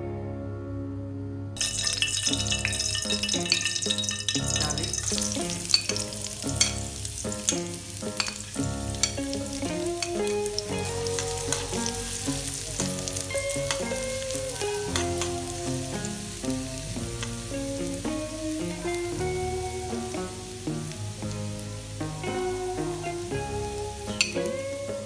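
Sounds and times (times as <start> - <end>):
background music: 0.0 - 25.0
metal spoon scraping wok: 1.6 - 10.3
garlic sizzling in hot oil: 1.6 - 25.0.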